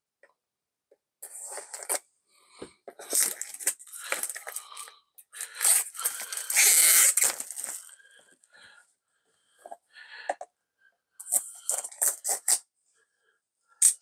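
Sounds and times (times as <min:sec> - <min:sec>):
shrink wrap crinkling and tearing: 0:03.0 - 0:07.9, 0:11.2 - 0:12.6
knife slitting shrink wrap: 0:05.4 - 0:07.9.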